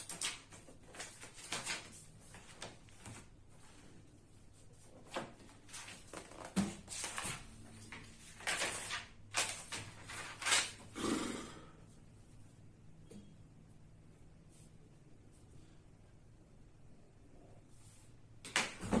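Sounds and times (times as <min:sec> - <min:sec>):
paper pages rustling: 0:00.0 - 0:03.9, 0:04.5 - 0:10.9.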